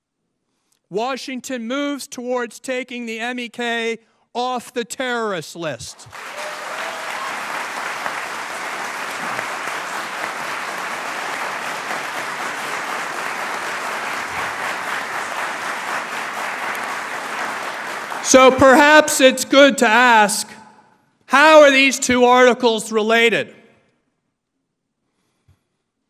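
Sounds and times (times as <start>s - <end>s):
audience applauding: 6.0s - 18.9s.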